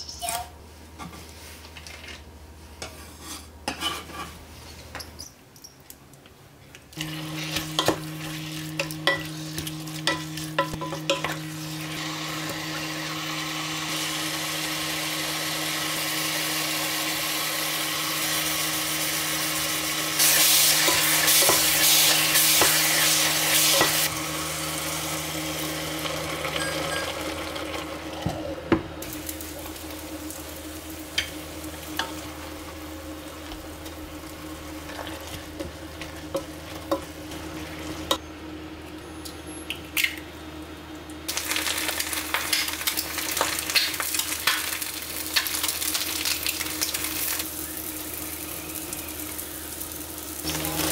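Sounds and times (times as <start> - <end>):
food sizzling in a pan: 7.0 - 28.1, 29.0 - 38.2, 41.3 - 50.9.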